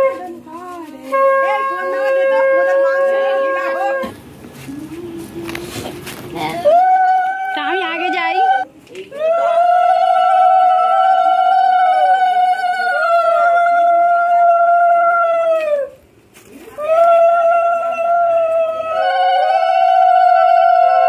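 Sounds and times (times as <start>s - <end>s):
women ululating: 6.6s - 16.0s, 16.6s - 21.0s.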